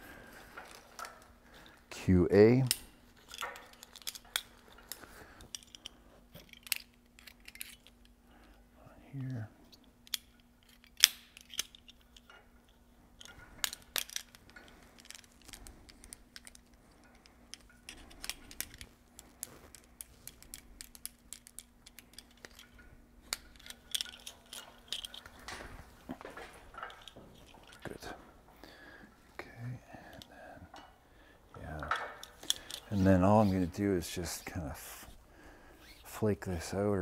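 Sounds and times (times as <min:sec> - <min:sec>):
faint steady hum: 0:00.0 - 0:37.0
metallic carabiner clicks: 0:02.6 - 0:08.1, 0:10.0 - 0:12.4, 0:13.2 - 0:25.5, 0:31.8 - 0:33.0.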